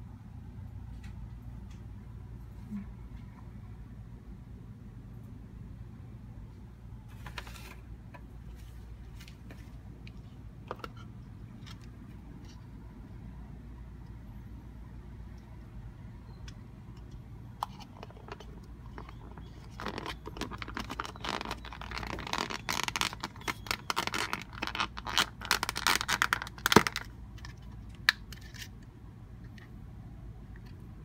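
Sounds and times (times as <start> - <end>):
plastic shells scraping and crackling: 17.0 - 28.8.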